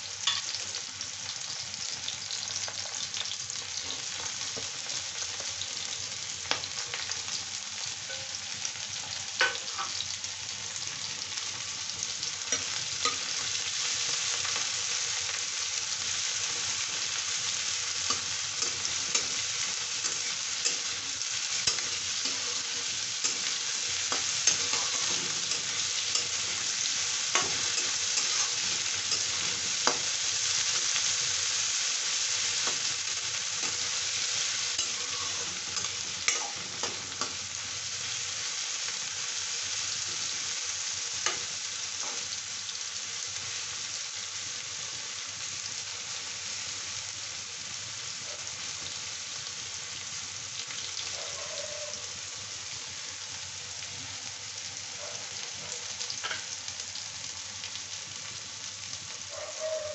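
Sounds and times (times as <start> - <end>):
vegetables sizzling in oil: 0.0 - 59.9
metal spatula scraping pan: 18.1 - 31.0.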